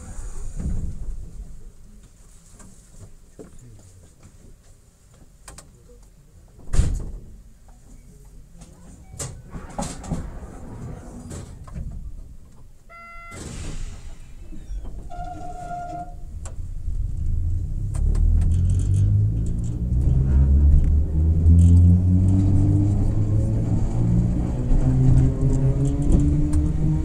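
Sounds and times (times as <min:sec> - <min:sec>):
short tones: 0:12.9 - 0:13.6
electric train motors rumbling: 0:14.0 - 0:27.0.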